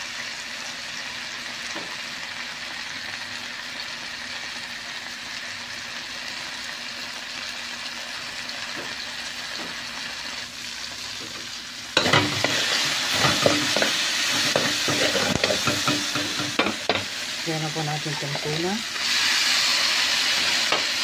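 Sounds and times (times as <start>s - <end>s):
food sizzling in oil: 0.0s - 21.0s
metal spoon scraping a pan: 12.0s - 17.1s.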